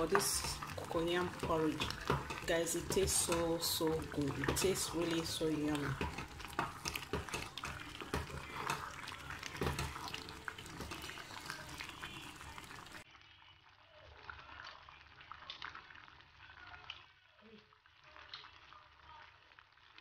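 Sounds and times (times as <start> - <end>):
wooden spoon stirring porridge: 0.0 - 13.1
porridge bubbling in pot: 0.0 - 20.0.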